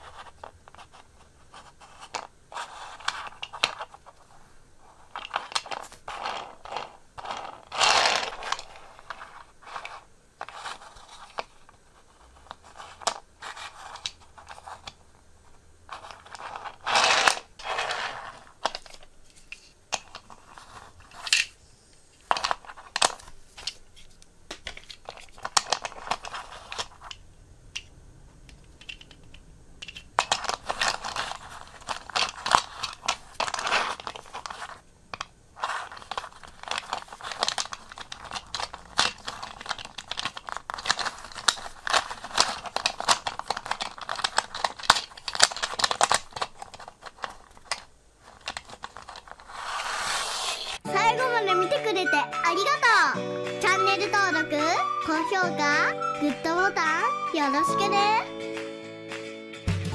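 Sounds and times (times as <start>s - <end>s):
handling rustle: 0.0s - 27.2s, 28.6s - 50.8s
toy cars clicking together: 24.5s - 27.2s, 28.5s - 49.5s.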